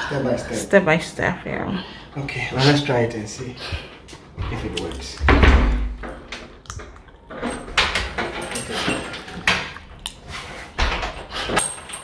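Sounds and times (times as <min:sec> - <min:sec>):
heavy door thud: 0:04.4 - 0:06.3.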